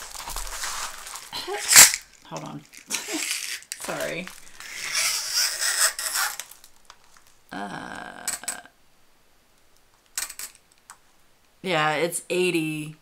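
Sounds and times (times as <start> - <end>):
plastic sheet crinkling: 0.0 - 7.4.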